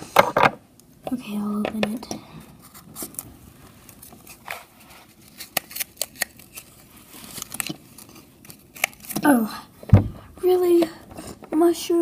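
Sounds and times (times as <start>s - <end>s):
paper rustling: 2.6s - 9.3s
small sharp paper clicks: 5.2s - 9.3s.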